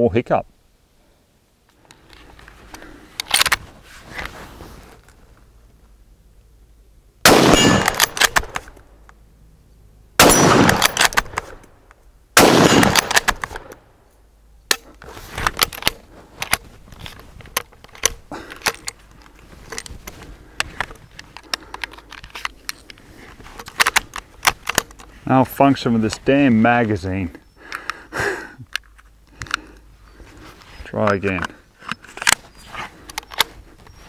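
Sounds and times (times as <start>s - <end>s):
rifle bolt clicking and rattling: 1.7s - 3.6s, 7.3s - 9.2s, 10.2s - 13.8s, 14.7s - 25.1s, 28.7s - 29.8s, 31.0s - 34.0s
rifle shots ringing: 7.2s - 8.6s, 10.2s - 11.6s, 12.4s - 13.7s.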